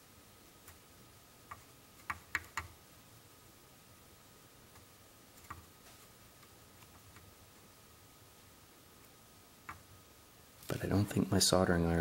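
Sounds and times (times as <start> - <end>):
faint high-pitched whine: 0.0 - 12.0.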